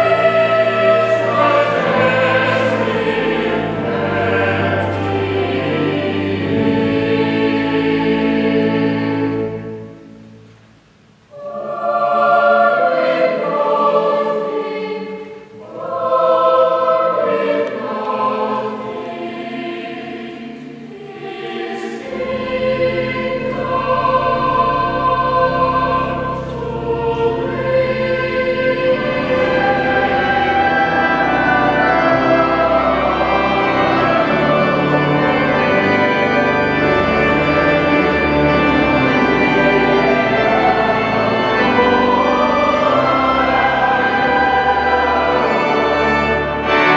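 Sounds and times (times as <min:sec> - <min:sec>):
deep organ bass notes: 0:00.0 - 0:09.9, 0:22.0 - 0:46.9
choir singing: 0:00.0 - 0:10.5, 0:11.3 - 0:46.9.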